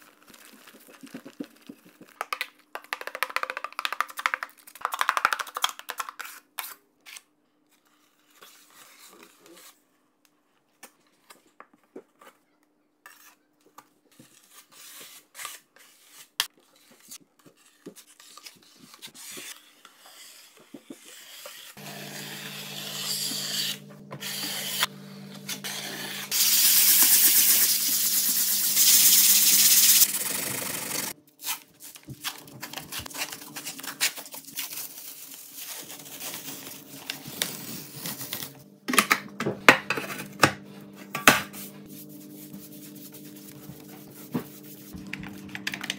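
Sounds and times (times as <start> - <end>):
taping knives scraping compound: 13.0 - 13.5, 14.1 - 30.3.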